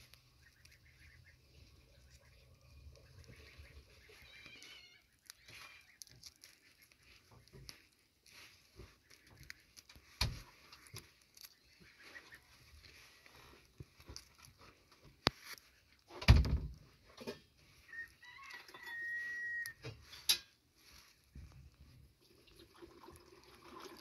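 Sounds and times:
eggshell clicks and crackles: 0:00.0 - 0:16.1
duckling peeping: 0:00.1 - 0:09.9, 0:10.5 - 0:13.6.

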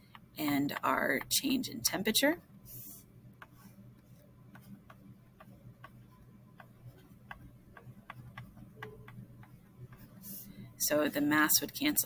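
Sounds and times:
stylus tapping on screen: 0:00.0 - 0:01.9, 0:03.4 - 0:10.2
low steady hum: 0:00.0 - 0:12.0.

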